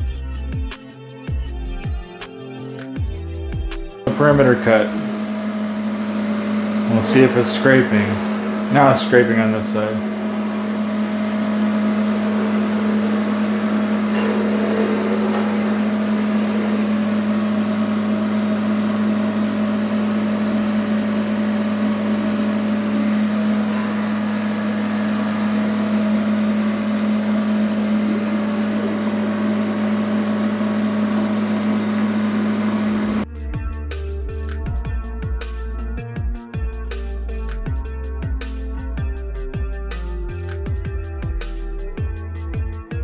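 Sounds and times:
music: 0.0s - 31.8s, 33.2s - 43.0s
electrical machine hum: 4.1s - 33.3s.

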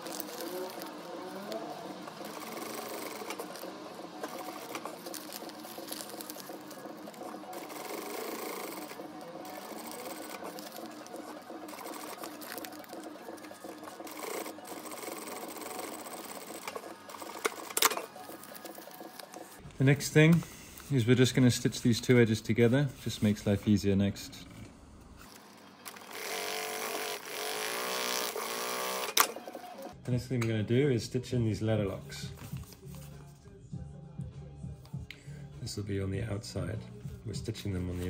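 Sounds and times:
sewing machine stitching: 0.0s - 19.5s, 25.9s - 30.0s.

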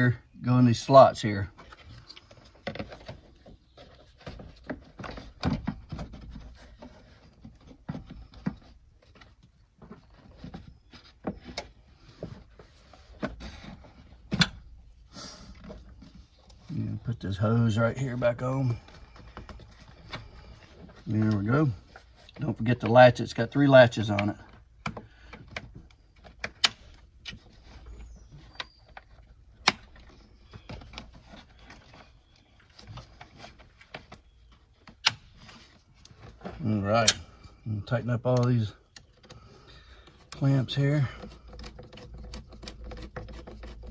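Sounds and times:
plastic rubbing: 1.5s - 37.6s, 38.4s - 43.9s
plastic knocks and clicks: 41.1s - 43.9s.

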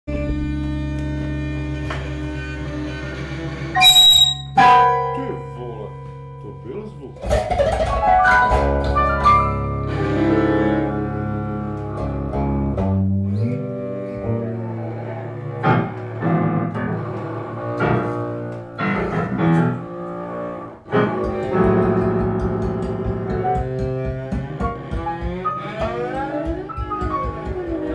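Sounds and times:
long low string notes: 0.1s - 27.9s
keyboard: 3.8s - 12.7s.

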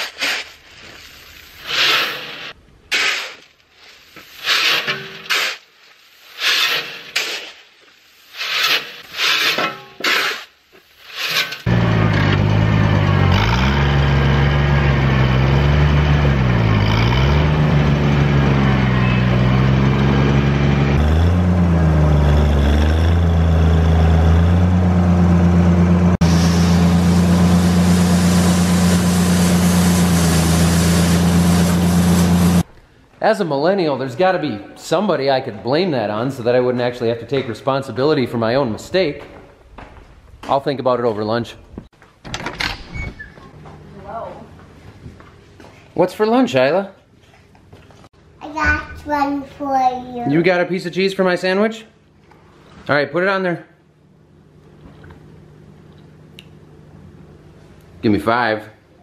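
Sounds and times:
shovel scraping corn off gravel: 0.0s - 11.7s
tractor engine running: 11.7s - 32.7s.

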